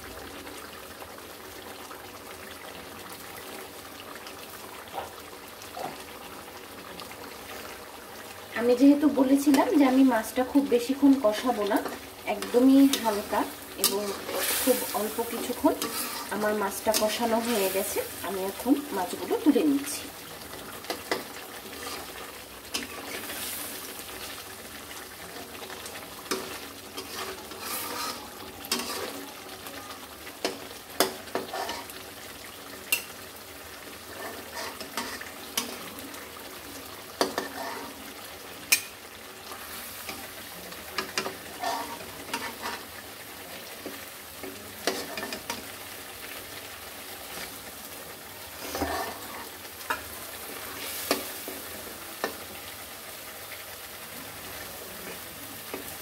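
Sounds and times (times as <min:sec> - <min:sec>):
fish sizzling in oil: 0:00.0 - 0:56.0
metal spatula scraping and knocking pan: 0:11.8 - 0:18.0, 0:26.3 - 0:29.2.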